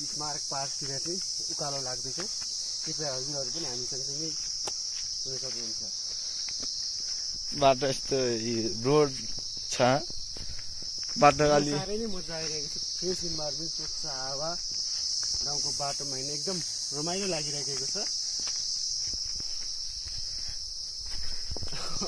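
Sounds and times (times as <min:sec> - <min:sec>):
insects chirping: 0:00.0 - 0:22.0
man talking: 0:07.5 - 0:10.1, 0:11.2 - 0:14.6.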